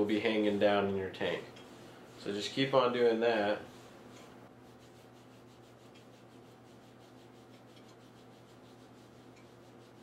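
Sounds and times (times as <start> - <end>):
low room hum: 0.0 - 10.0
yarn rubbing swish: 0.4 - 10.0.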